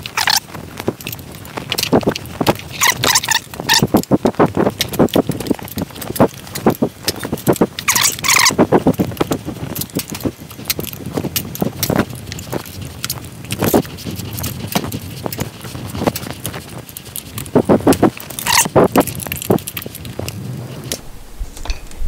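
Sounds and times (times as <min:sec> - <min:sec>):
rubber squeak: 0:00.0 - 0:00.5, 0:02.4 - 0:05.3, 0:06.0 - 0:08.9, 0:13.6 - 0:22.0
tire knocking and scraping on rim: 0:00.0 - 0:22.0.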